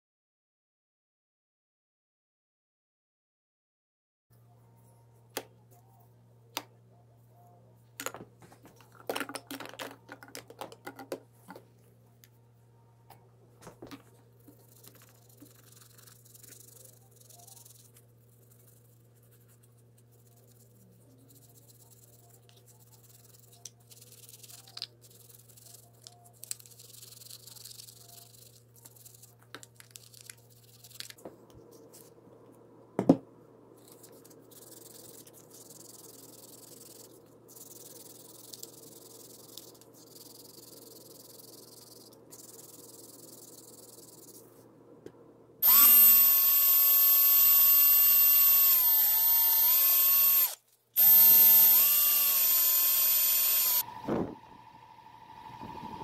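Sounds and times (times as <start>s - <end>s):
power drill spinning polishing pad: 45.6s - 54.1s.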